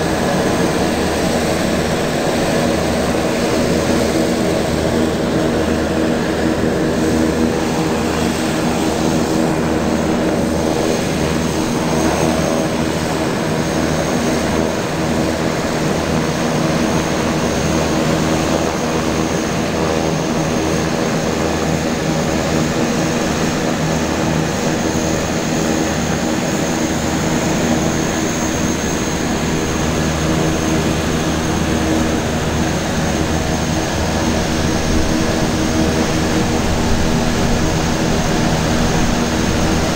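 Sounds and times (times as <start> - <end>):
aircraft engine running: 0.0 - 39.9.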